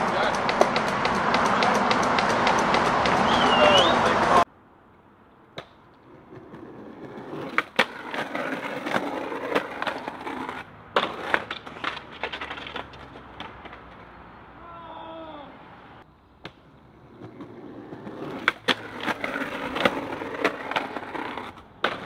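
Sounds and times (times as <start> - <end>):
skateboard clacking on ledge: 0.0 - 3.5, 7.3 - 14.0
skateboard wheels rolling on concrete: 0.0 - 22.0
skateboard grinding on ledge: 6.0 - 13.8, 17.0 - 22.0.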